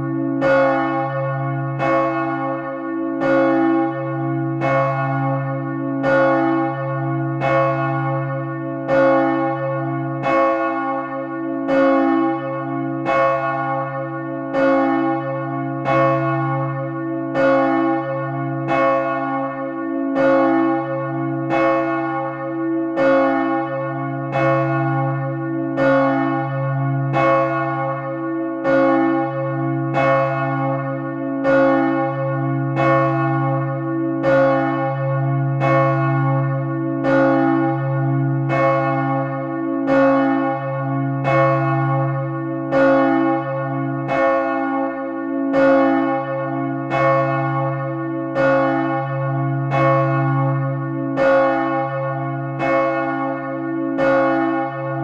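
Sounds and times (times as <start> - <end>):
church bell ringing: 0.0 - 55.0.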